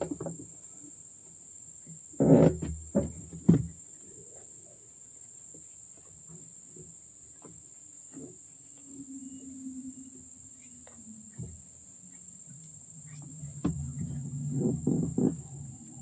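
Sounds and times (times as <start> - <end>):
high insect drone: 0.0 - 16.0
knocks on aluminium boat: 13.6 - 15.4.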